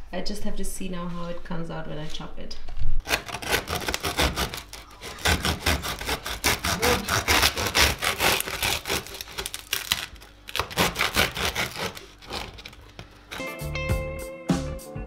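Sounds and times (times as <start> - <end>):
bread knife sawing through crust: 3.0 - 13.6.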